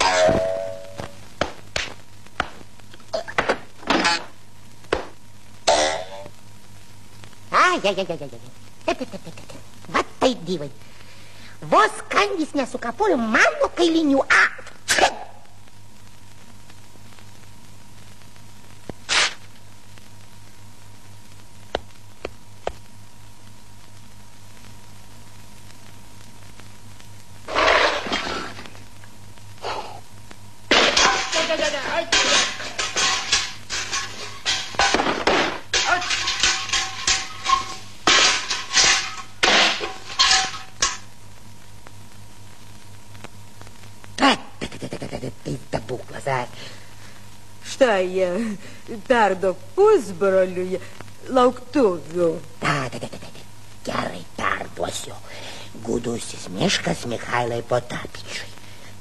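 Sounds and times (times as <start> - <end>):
cartoon percussive knocks: 0.0 - 1.1
film soundtrack hum and hiss: 0.0 - 59.0
paper ripping: 19.1 - 19.4.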